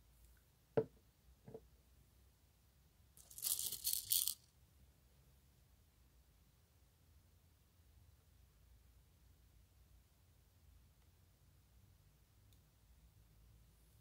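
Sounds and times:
plastic packet crinkling: 0:03.2 - 0:04.4.

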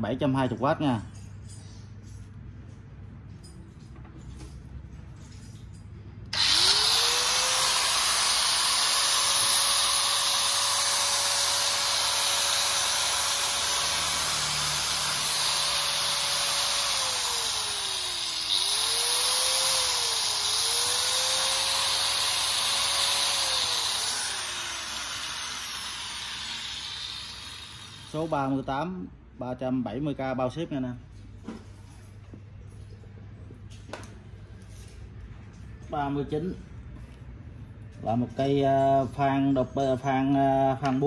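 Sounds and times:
angle grinder whining: 0:06.3 - 0:28.6.

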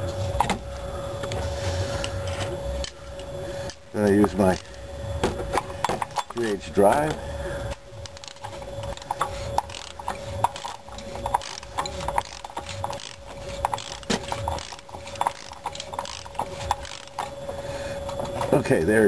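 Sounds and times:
ratchet clicking: 0:07.7 - 0:17.4.

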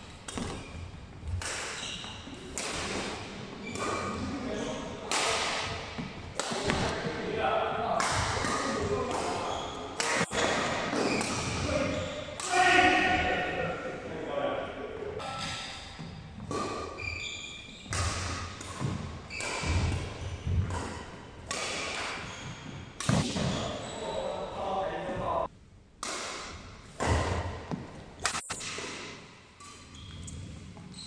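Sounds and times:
shoe squeaks on floor: 0:00.3 - 0:01.0, 0:01.7 - 0:02.4, 0:03.6 - 0:04.9, 0:09.4 - 0:12.4, 0:16.9 - 0:18.1, 0:19.3 - 0:20.6, 0:22.1 - 0:24.4, 0:29.6 - 0:31.0
racket striking shuttlecock: 0:01.2 - 0:04.2, 0:05.1 - 0:06.9, 0:08.0 - 0:11.6, 0:17.9 - 0:22.3, 0:23.0 - 0:23.5, 0:26.0 - 0:29.9.

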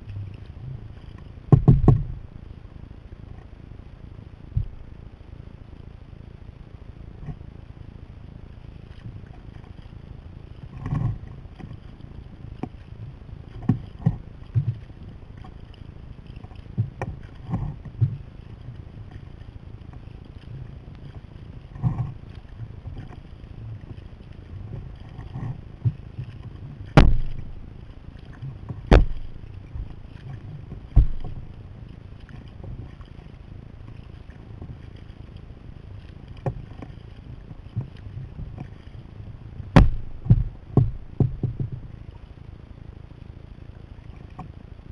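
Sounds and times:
paddle knocks and splashes: 0:00.1 - 0:02.4, 0:04.5 - 0:04.9, 0:10.6 - 0:42.1
water washing: 0:13.7 - 0:41.8.

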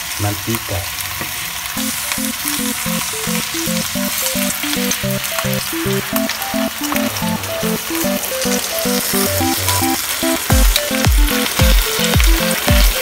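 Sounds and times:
pork sizzling in oil: 0:00.0 - 0:13.0
background music with short notes: 0:01.8 - 0:13.0.

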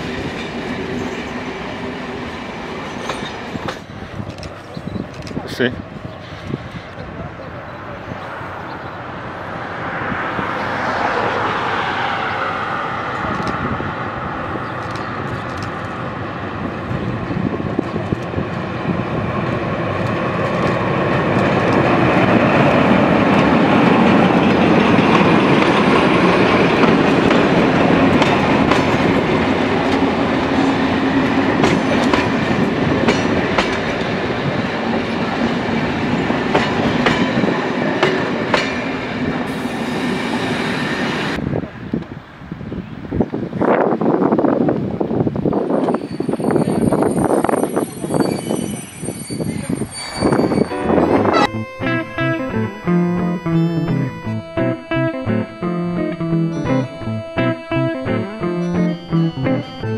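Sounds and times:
diesel locomotive engine: 0:00.0 - 0:43.1, 0:44.8 - 0:59.9
train wheels clicking over rail joints: 0:02.9 - 0:05.4, 0:19.5 - 0:34.2, 0:35.8 - 0:39.8.

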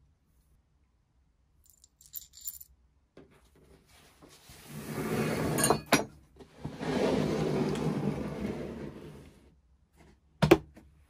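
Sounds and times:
metal screws clinking in a hand: 0:01.6 - 0:02.8
handling and scraping noise: 0:03.2 - 0:10.2.

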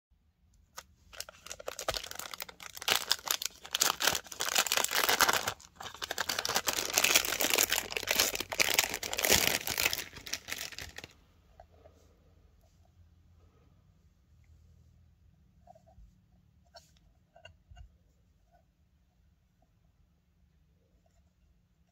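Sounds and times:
plastic bag crinkling: 0:01.0 - 0:11.2.

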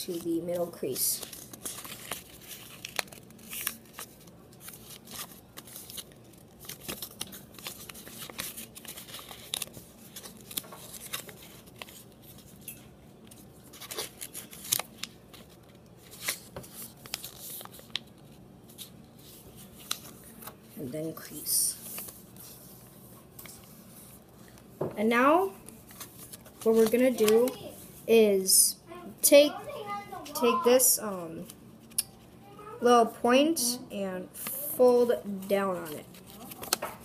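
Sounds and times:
paper rustling as folded: 0:00.0 - 0:24.6, 0:25.6 - 0:28.0, 0:35.3 - 0:37.0.

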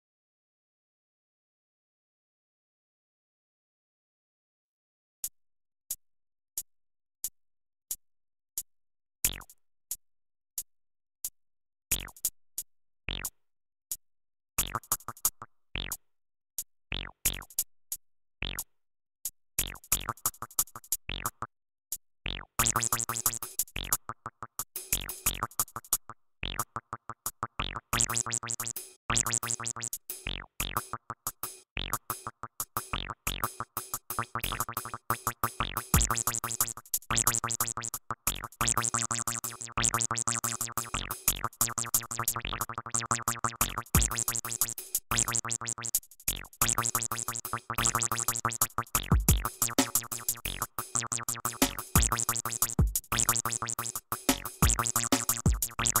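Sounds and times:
drum machine clicks: 0:22.6 - 0:24.0, 0:28.0 - 0:56.0
electronic music: 0:32.0 - 0:56.0
synthesizer: 0:51.2 - 0:51.8.

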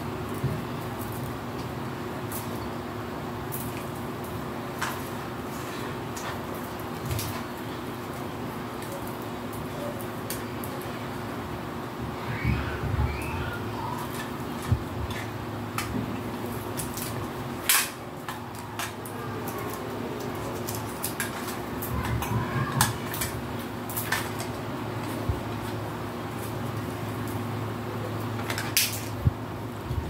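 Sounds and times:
steady low hum: 0:00.0 - 0:30.0
christmas decorations clicking and rattling: 0:13.9 - 0:27.5.

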